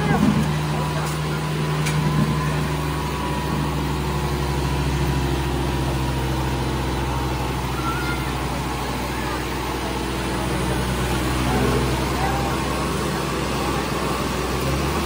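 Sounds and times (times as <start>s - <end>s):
tractor engine under load: 0.0s - 15.0s.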